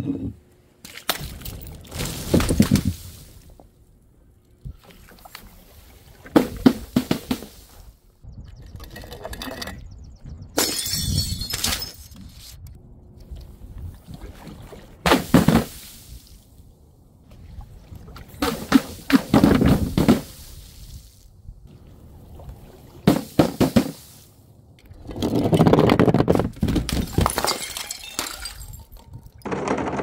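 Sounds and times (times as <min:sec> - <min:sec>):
glass bottles shattering: 0:10.6 - 0:12.1, 0:26.9 - 0:29.5
glass shards clattering: 0:10.6 - 0:12.2, 0:27.1 - 0:29.4.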